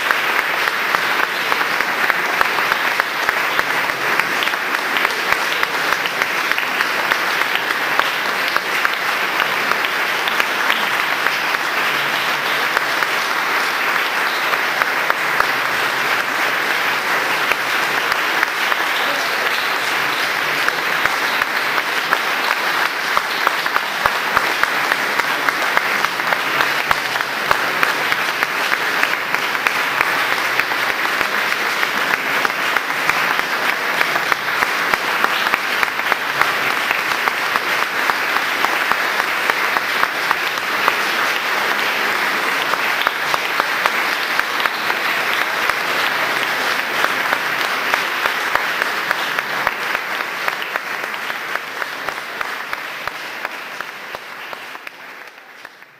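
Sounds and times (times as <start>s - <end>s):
audience applauding: 0.0s - 55.9s.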